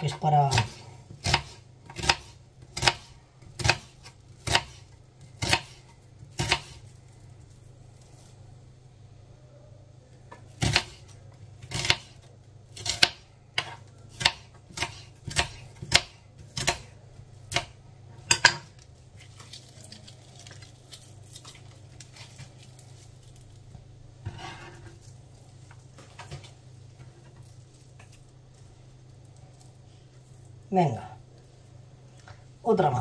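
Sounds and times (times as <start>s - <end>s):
knife chopping on cutting board: 0.4s - 4.8s, 5.4s - 6.8s, 10.5s - 11.0s, 11.7s - 12.2s, 12.8s - 16.9s.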